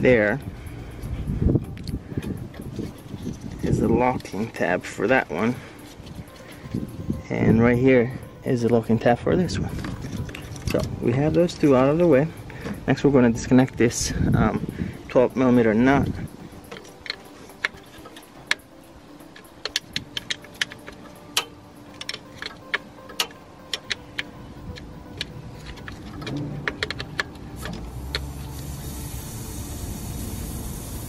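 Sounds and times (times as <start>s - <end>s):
wrench clicking on metal: 16.6s - 28.3s
air pressure hissing: 27.6s - 31.0s.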